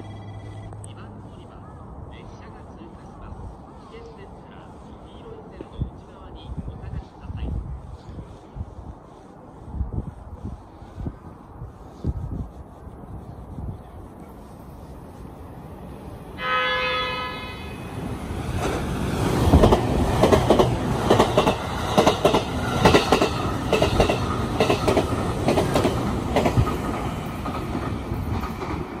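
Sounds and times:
train rumbling past: 12.9 - 29.0
train horn blast: 16.4 - 17.9.

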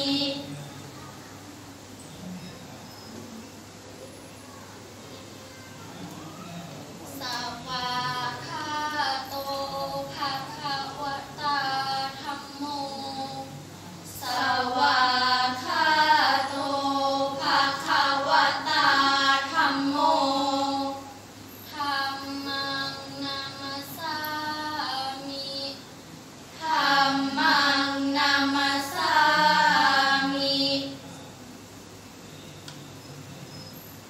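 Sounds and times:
girls chanting together: 7.2 - 13.5, 14.2 - 25.8, 26.6 - 31.0.

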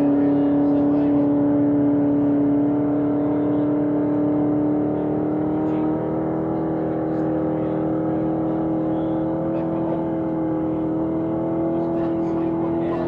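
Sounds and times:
supercharged engine at high revs: 0.0 - 13.0.

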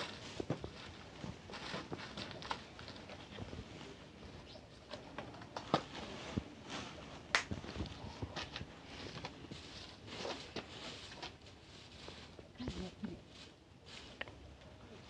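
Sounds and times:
leaves rustling in a sack: 5.4 - 15.0.

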